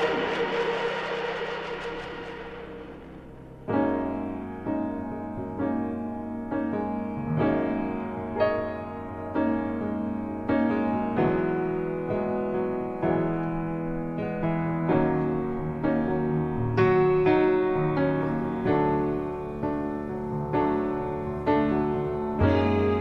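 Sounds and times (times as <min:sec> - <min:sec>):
slow piano chords: 0:00.0 - 0:23.0.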